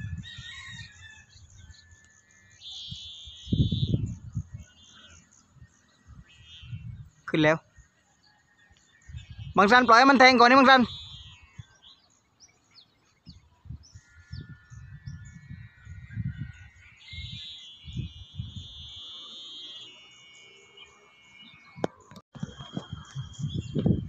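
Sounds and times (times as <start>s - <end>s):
wind rumbling on microphone: 0.0s - 2.0s, 2.8s - 8.0s, 8.8s - 12.0s, 12.7s - 19.0s, 21.6s - 24.0s
birds chirping: 0.0s - 24.0s
steady high whistling tone: 14.8s - 24.0s.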